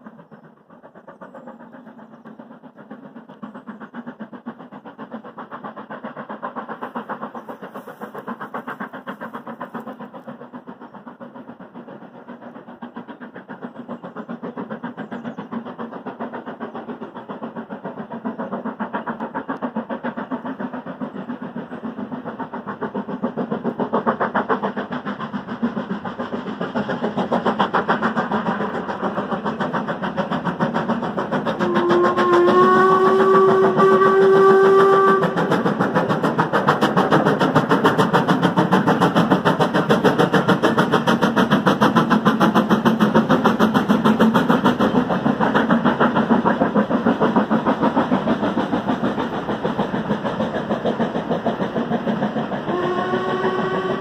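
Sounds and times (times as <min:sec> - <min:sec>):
steam locomotive exhaust chuffs: 0:00.0 - 0:54.0
steam whistle long note: 0:31.6 - 0:35.5, 0:52.7 - 0:54.0.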